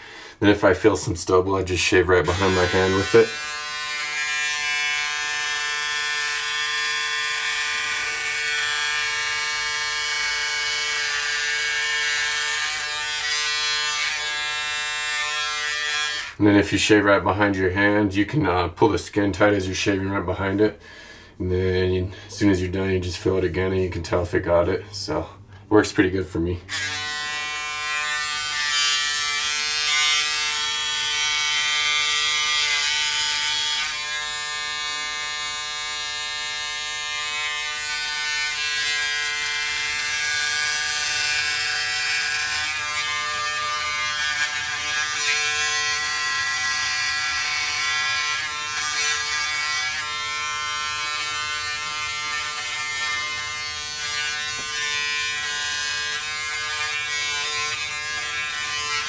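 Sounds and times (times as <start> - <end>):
electric shaver cutting stubble: 2.2 - 16.4, 26.6 - 59.0.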